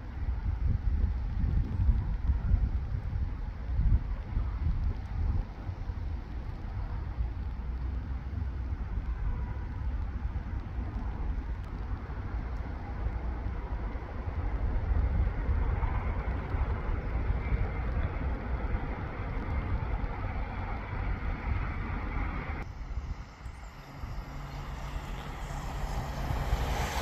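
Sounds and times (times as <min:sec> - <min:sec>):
wind buffeting microphone: 0:00.0 - 0:27.0
electric train rumble and hiss: 0:22.4 - 0:27.0.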